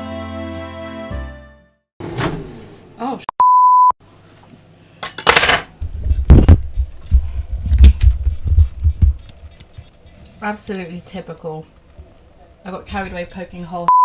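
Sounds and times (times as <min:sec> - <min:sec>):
censor bleep: 0:03.4 - 0:04.0.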